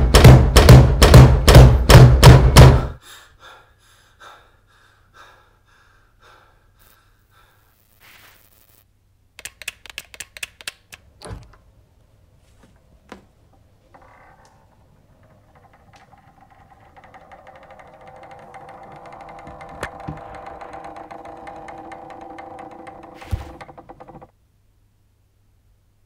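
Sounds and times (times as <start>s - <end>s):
heavy drum beats: 0.0s - 3.0s.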